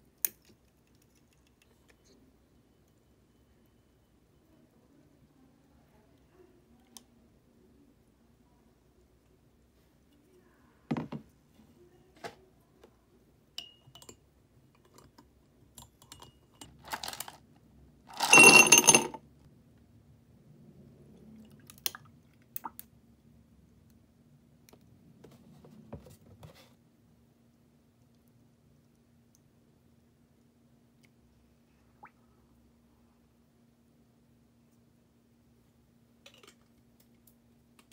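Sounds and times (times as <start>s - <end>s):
glass and ice clinking: 13.6s - 14.2s, 18.2s - 19.2s
ice cubes clattering into glass: 18.1s - 19.2s.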